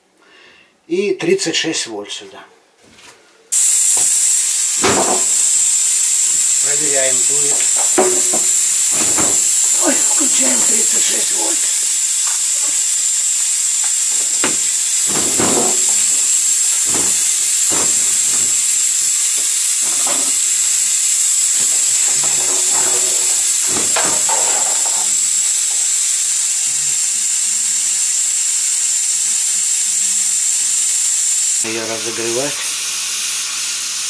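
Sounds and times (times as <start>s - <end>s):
hot-air welding gun hissing: 3.5s - 34.0s
handling knocks: 3.9s - 25.9s.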